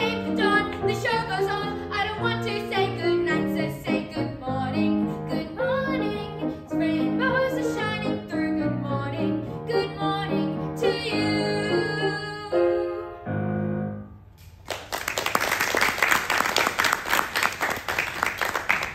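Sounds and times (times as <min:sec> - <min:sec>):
girl singing: 0:00.0 - 0:13.2
grand piano: 0:00.0 - 0:14.4
audience applause: 0:14.6 - 0:18.9.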